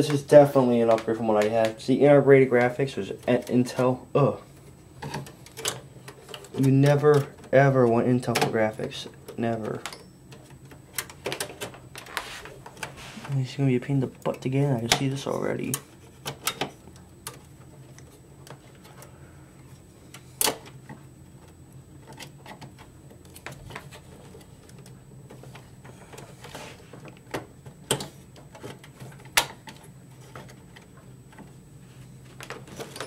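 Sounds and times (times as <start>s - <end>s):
low steady hum: 0.0s - 33.0s
clicks and rattles of computer parts: 5.0s - 13.0s, 14.2s - 19.1s, 19.8s - 31.6s, 32.3s - 33.0s.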